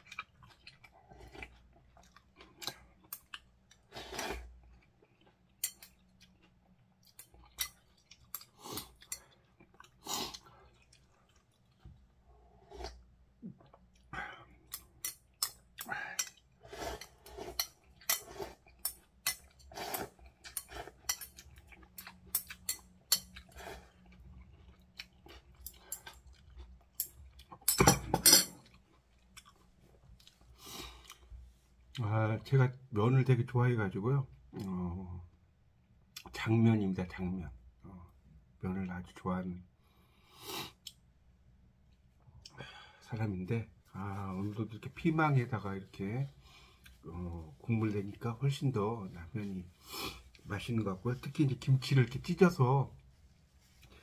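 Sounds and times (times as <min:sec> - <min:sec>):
chewing and mouth smacks: 0:04.6 - 0:12.1
slurping noodles: 0:16.3 - 0:17.6, 0:19.7 - 0:21.0.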